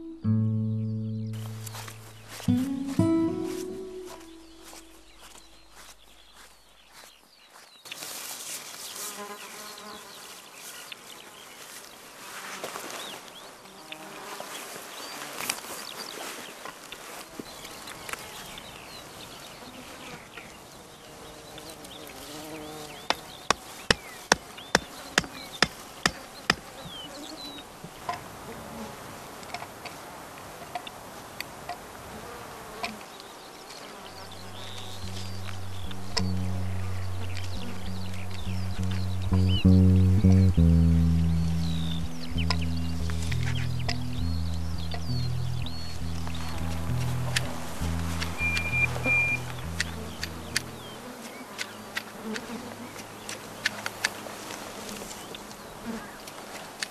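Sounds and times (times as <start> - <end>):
low steady hum: 0.0 - 6.8, 34.0 - 51.0
insects buzzing: 1.4 - 7.1, 19.6 - 27.7, 32.3 - 56.5
sharp clicks: 42.0 - 45.3, 46.0 - 51.0.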